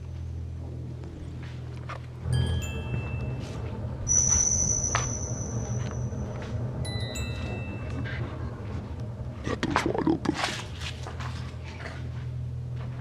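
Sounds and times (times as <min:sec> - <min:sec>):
low drone: 0:00.0 - 0:13.0
bell-like chime tones: 0:02.3 - 0:08.6
thin high tone: 0:02.3 - 0:09.0.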